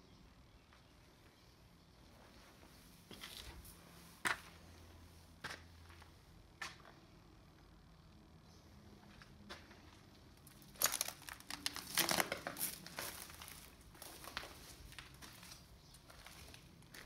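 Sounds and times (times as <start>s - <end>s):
footsteps crunching on broken glass: 10.4s - 17.0s.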